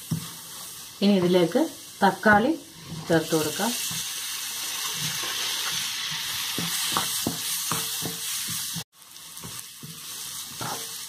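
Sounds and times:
tomatoes sizzling in hot oil: 0.0s - 11.0s
wooden spatula scraping pan: 9.4s - 11.0s.

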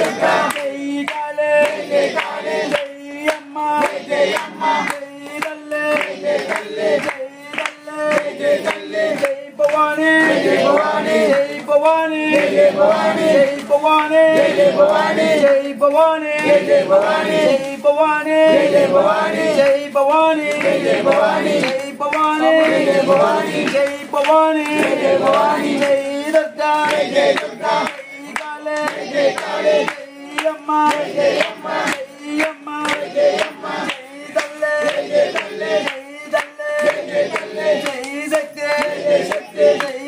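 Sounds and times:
men singing devotional song: 0.0s - 40.0s.

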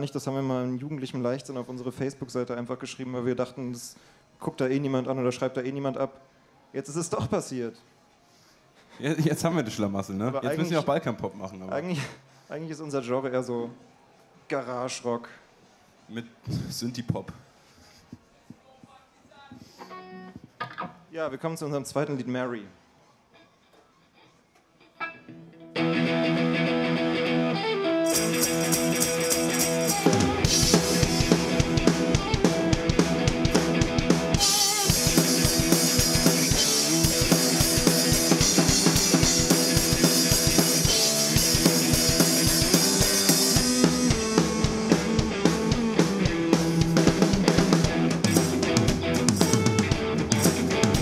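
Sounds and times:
electric guitar: 19.8s - 21.1s, 24.8s - 51.0s
drum kit with kick drum: 28.2s - 51.0s.

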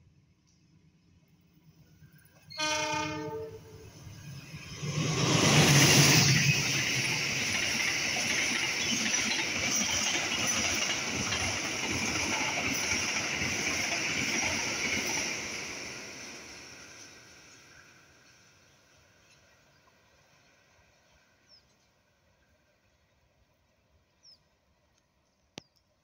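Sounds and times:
train wheels on rails: 1.9s - 21.9s.

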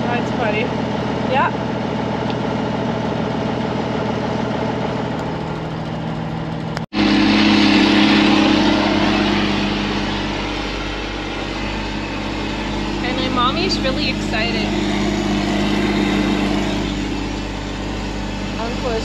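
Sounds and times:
tractor engine: 0.0s - 19.0s
truck engine running: 0.0s - 19.0s
forage harvester chopping corn: 7.0s - 19.0s.

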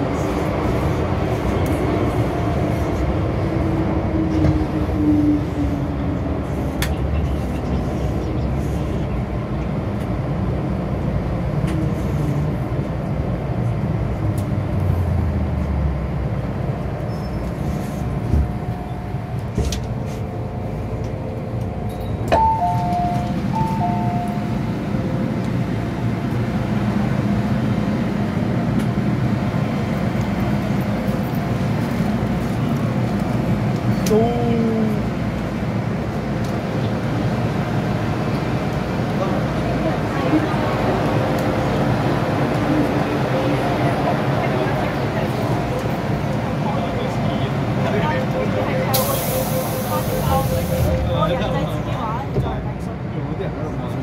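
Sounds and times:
train rumble and motor whine: 0.0s - 54.0s
two-tone door chime: 22.4s - 24.4s.

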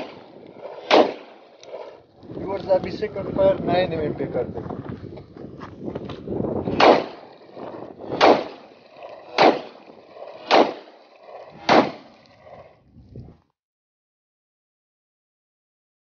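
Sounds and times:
pistol shots: 0.0s - 1.4s, 6.6s - 7.3s, 8.0s - 8.6s, 9.3s - 9.8s, 10.4s - 10.9s, 11.6s - 12.1s.

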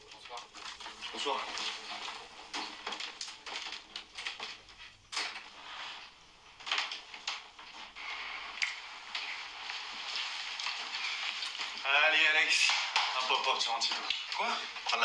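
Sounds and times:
knocks and clicks of people moving: 0.0s - 15.0s
light steady hiss: 0.0s - 15.0s.

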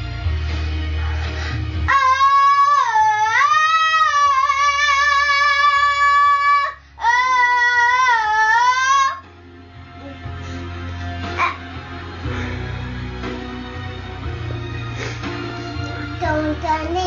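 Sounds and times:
girl singing into microphone: 1.8s - 9.2s, 16.1s - 17.0s.

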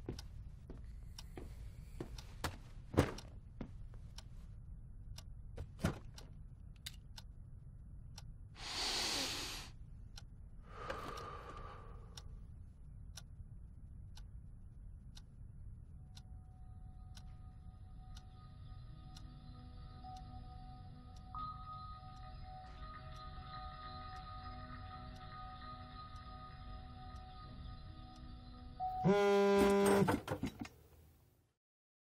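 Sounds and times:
low room hum: 0.0s - 29.4s
soft breathy sounds: 10.6s - 12.5s
faint sustained music tones: 14.8s - 29.9s.

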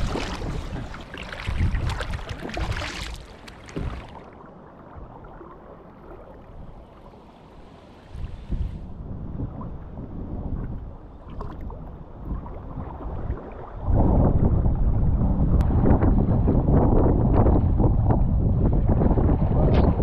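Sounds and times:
wind buffeting microphone: 0.0s - 3.1s, 7.6s - 20.0s
paddle strokes splashing water: 0.0s - 8.6s
water lapping against hull: 0.0s - 18.3s.

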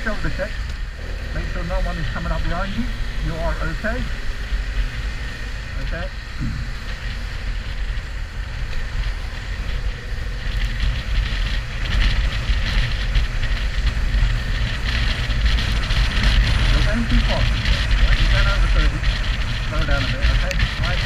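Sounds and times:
motorcycle engine drone: 0.0s - 21.0s
wind rushing over microphone: 0.0s - 21.0s.

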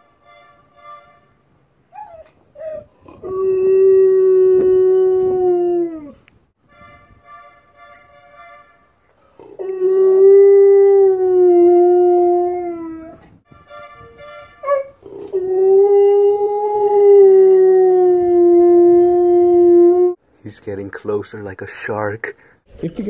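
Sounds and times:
dog howling: 2.0s - 6.2s, 9.4s - 13.2s, 14.6s - 20.2s.

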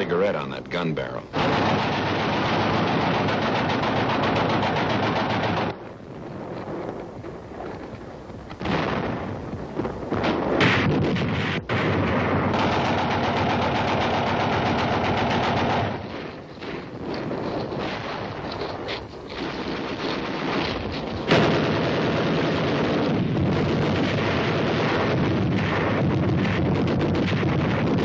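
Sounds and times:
machine-gun fire: 1.4s - 5.8s, 10.1s - 18.5s, 19.4s - 28.0s
loud blast: 10.1s - 13.9s, 19.4s - 28.0s.

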